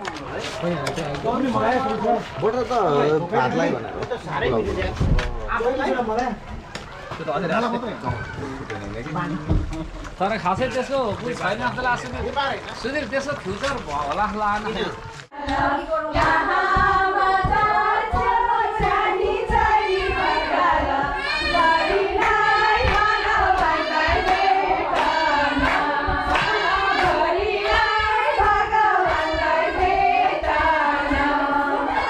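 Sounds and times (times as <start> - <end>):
group singing: 15.3 - 32.0
hand clapping: 22.2 - 31.3.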